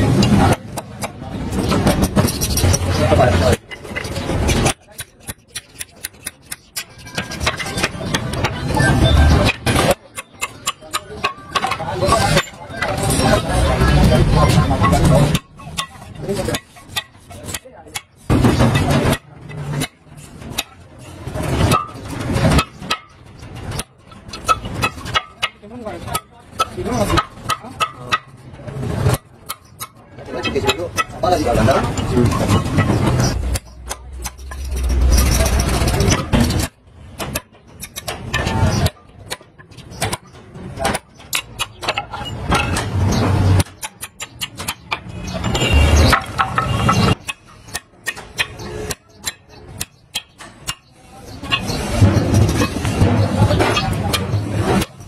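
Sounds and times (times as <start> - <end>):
rough noise: 30.2 - 38.9, 45.0 - 47.8.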